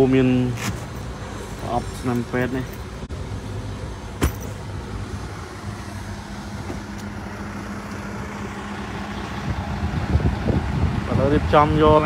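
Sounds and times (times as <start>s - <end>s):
vehicle engine idling: 0.0s - 12.0s.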